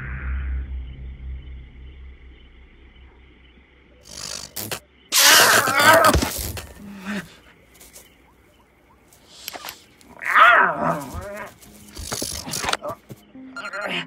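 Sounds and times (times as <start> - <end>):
crackling electric zap: 4.0 - 6.7
wavering cat-like yowl: 5.1 - 7.3, 9.5 - 11.6.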